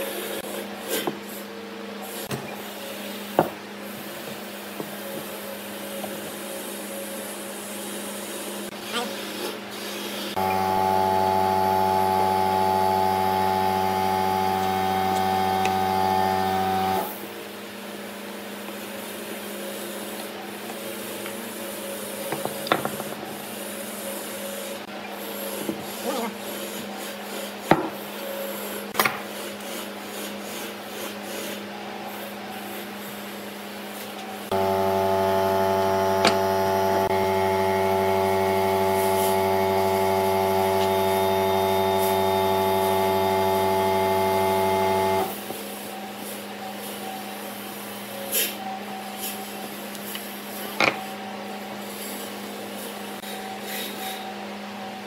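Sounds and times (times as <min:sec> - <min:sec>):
machine hum: 0:10.4 - 0:17.1, 0:34.5 - 0:45.4.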